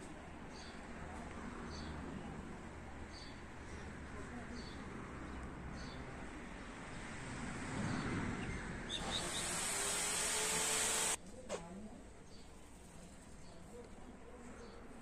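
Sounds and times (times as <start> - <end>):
small birds chirping: 7.9 - 9.8
hissing rush: 9.0 - 11.2.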